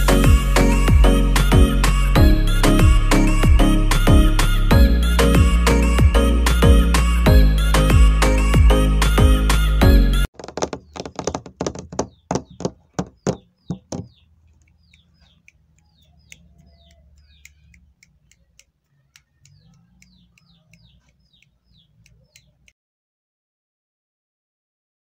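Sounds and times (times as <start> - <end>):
small bird chirping: 10.6 - 22.7.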